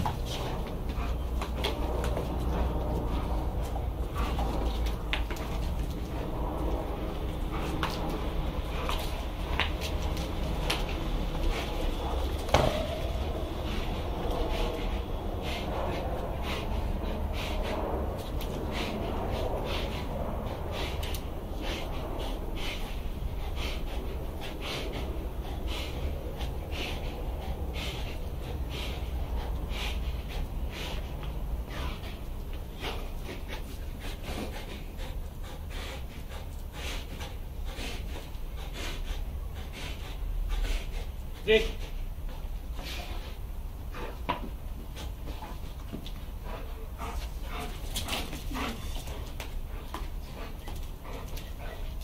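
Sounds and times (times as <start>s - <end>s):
low rumble: 0.0s - 41.3s
dog panting: 0.0s - 52.0s.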